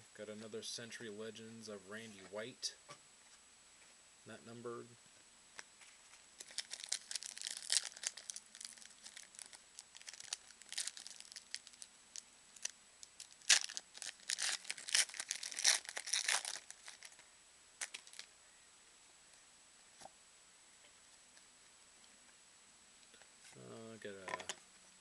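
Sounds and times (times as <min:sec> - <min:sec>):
foil wrapper tearing and crinkling: 0:06.4 - 0:11.9, 0:12.6 - 0:17.2, 0:17.8 - 0:18.3.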